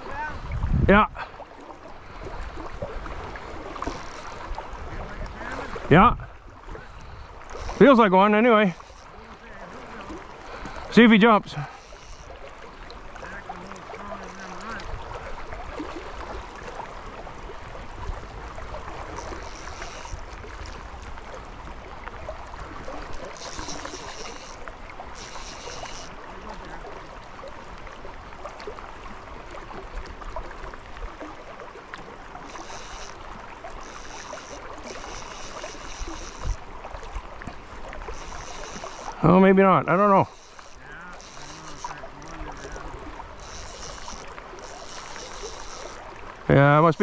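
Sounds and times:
wind on microphone: 0:00.0 - 0:01.4
river current rushing: 0:00.0 - 0:47.0
fishing reel whirring: 0:01.6 - 0:05.9, 0:06.6 - 0:30.2, 0:30.9 - 0:47.0.

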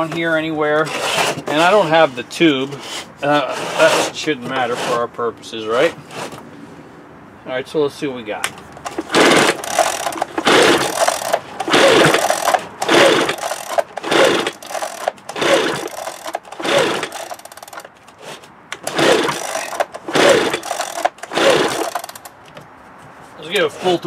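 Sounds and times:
pull-starter rope whirring: 0:00.0 - 0:02.0, 0:08.8 - 0:22.3.

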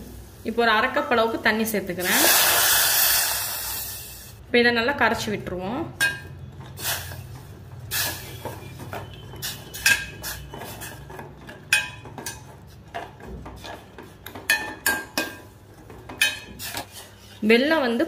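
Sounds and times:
ladle clinking against a saucepan: 0:09.7 - 0:10.2, 0:11.5 - 0:13.1.

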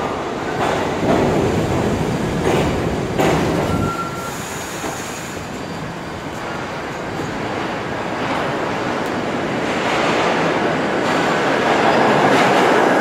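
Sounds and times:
standing train noise: 0:00.0 - 0:13.0
subway train wheel rumble: 0:00.0 - 0:13.0
thin brake squeal: 0:03.7 - 0:04.8.

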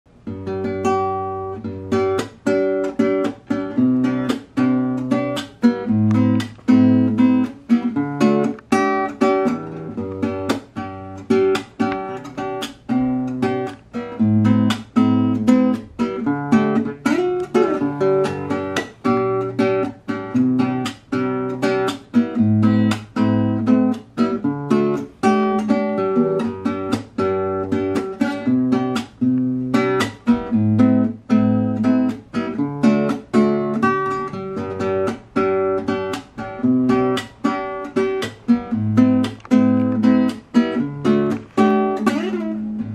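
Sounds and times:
classical guitar fingerstyle: 0:00.1 - 0:42.9.

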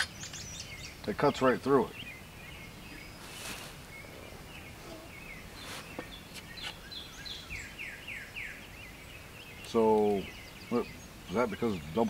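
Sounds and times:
birds chirping faintly: 0:00.0 - 0:12.0
cloth rustling: 0:03.1 - 0:06.8.

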